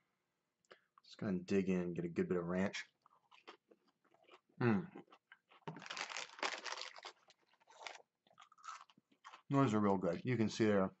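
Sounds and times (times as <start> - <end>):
crunchy chewing: 3.0 - 9.5.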